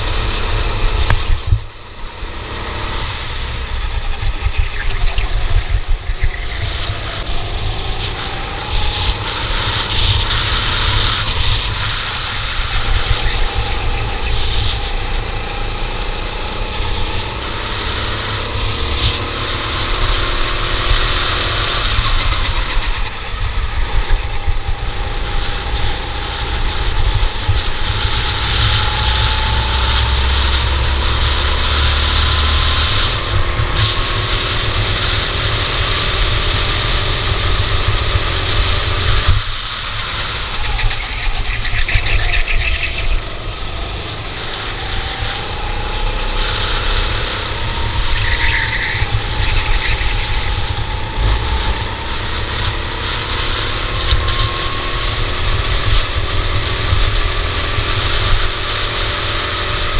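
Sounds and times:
kart engine racing: 0.0 - 59.9
steady rushing noise: 0.0 - 59.9.

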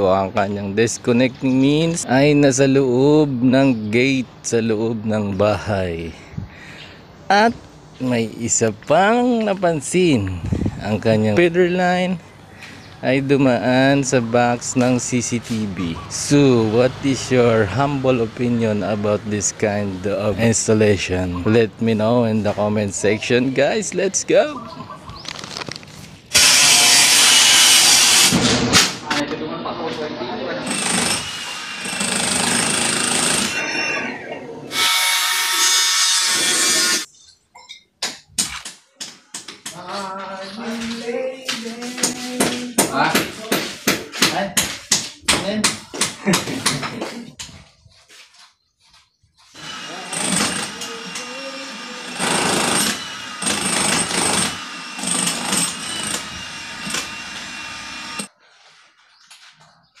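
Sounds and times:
power tool running: 26.3 - 28.9, 30.6 - 37.1, 49.6 - 58.3
sharp knocks on concrete: 38.0 - 39.8, 42.4 - 47.1.

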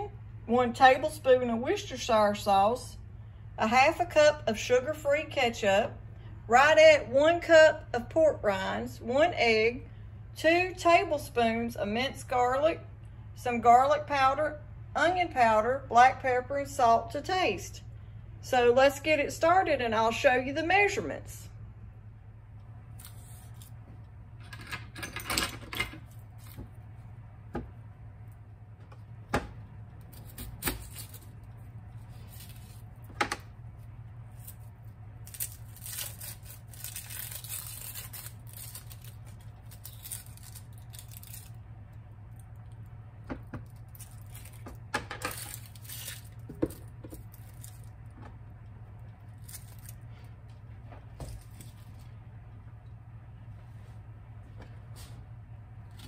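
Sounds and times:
steady low hum: 0.0 - 56.0
onion skin crackling and tearing: 22.9 - 23.8, 30.0 - 33.1, 34.3 - 41.6, 43.7 - 48.0, 49.3 - 50.0.

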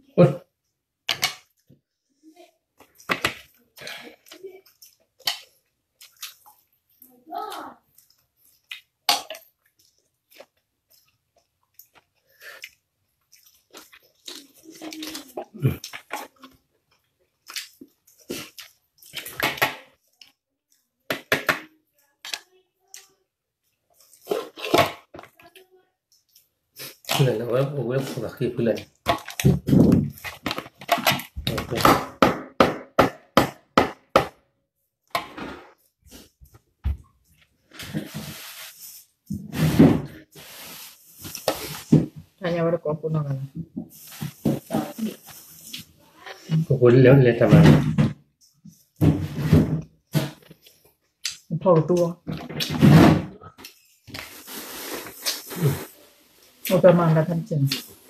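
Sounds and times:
chewing: 2.8 - 7.2, 7.8 - 20.9.

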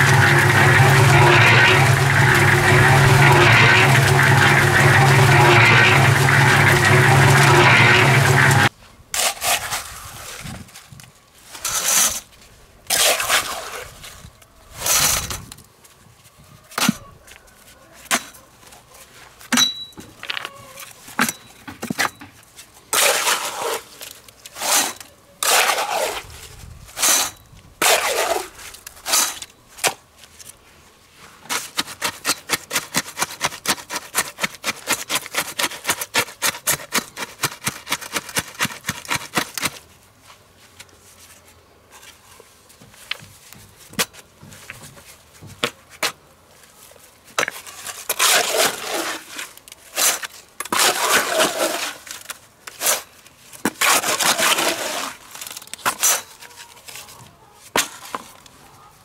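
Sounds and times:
machine humming: 0.0 - 8.7
knocks and scrapes of handling: 0.0 - 32.2.

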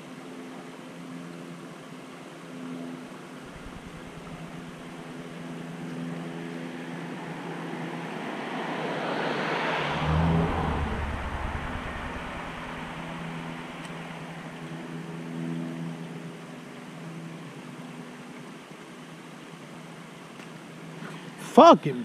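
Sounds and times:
steady low hum: 3.4 - 5.6, 9.9 - 14.8
vehicle passing by: 3.5 - 5.8, 6.4 - 15.0.

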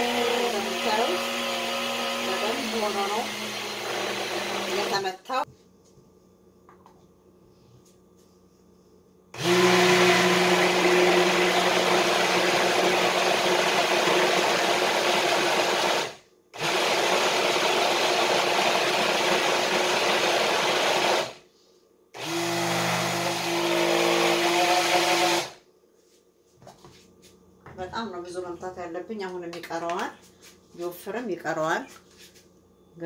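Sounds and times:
small blender motor running: 0.0 - 5.2, 9.4 - 21.4, 22.2 - 25.6.

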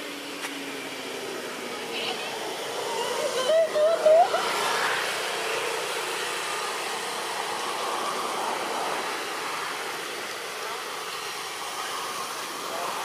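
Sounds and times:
rushing outdoor noise: 0.0 - 13.0.

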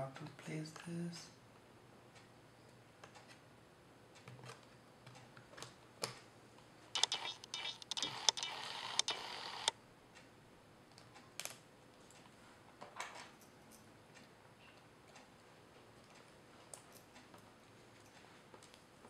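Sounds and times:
laptop panel clicking: 7.0 - 9.7.

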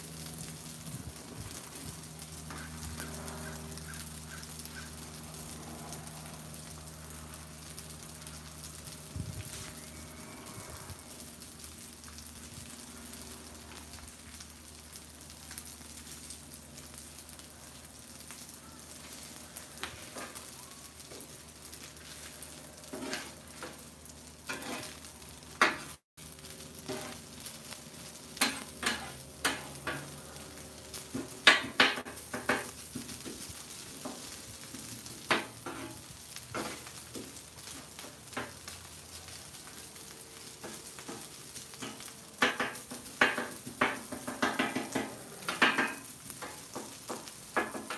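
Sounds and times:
food sizzling on a griddle: 0.0 - 47.9
metal spatulas scraping a griddle: 22.0 - 23.8, 24.5 - 25.0, 26.8 - 27.2, 28.4 - 30.1, 35.2 - 36.9.

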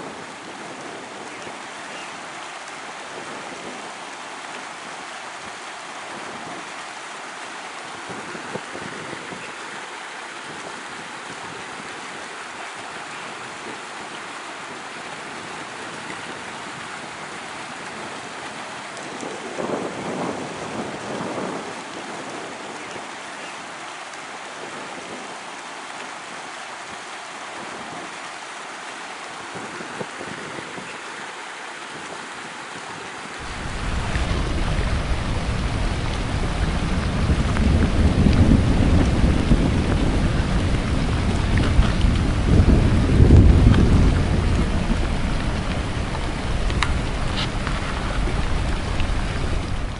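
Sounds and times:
floodwater rushing: 0.0 - 49.9
loud low rumble: 33.4 - 49.9.

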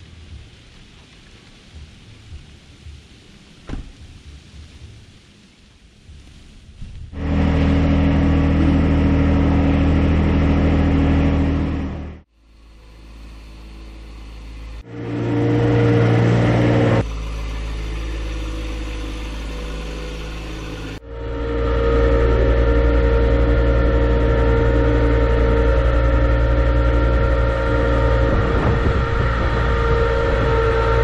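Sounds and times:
tractor diesel engine running: 7.2 - 31.0.

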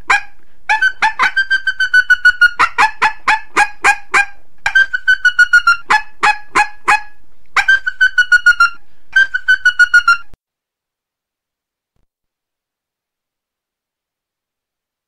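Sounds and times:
coyote high chirps: 0.1 - 10.4.

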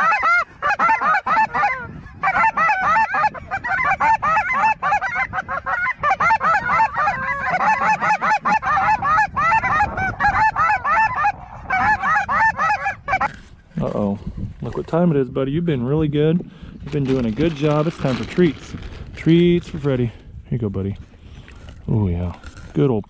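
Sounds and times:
flock of geese calling: 0.0 - 13.4.

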